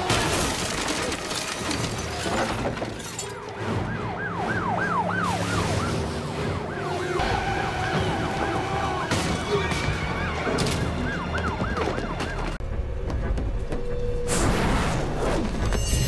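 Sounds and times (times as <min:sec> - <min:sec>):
police siren yelping: 0:02.9 - 0:12.6.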